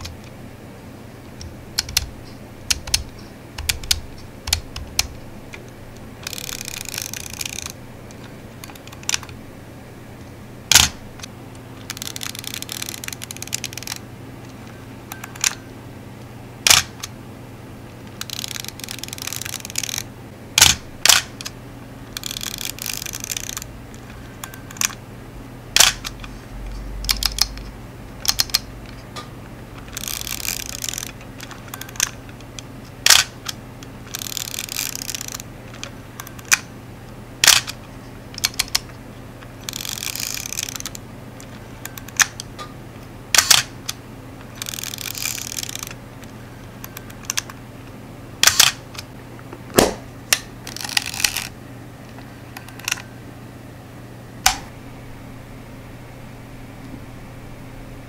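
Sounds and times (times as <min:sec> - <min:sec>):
film advance lever ratcheting: 0:01.4 - 0:09.4, 0:11.8 - 0:14.0, 0:16.6 - 0:17.1, 0:18.1 - 0:21.5, 0:22.1 - 0:25.0, 0:25.8 - 0:26.2, 0:27.1 - 0:27.6, 0:28.2 - 0:28.7, 0:29.8 - 0:36.7, 0:37.4 - 0:37.8, 0:38.4 - 0:38.8, 0:39.6 - 0:42.5, 0:43.4 - 0:46.0, 0:46.8 - 0:47.6, 0:48.4 - 0:49.0, 0:50.3 - 0:51.5, 0:52.6 - 0:53.1.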